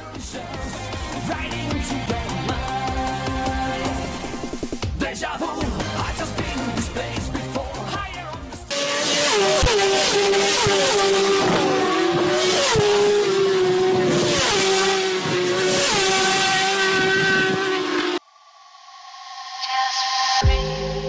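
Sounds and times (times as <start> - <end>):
racing motorcycles passing: 8.7 - 18.2.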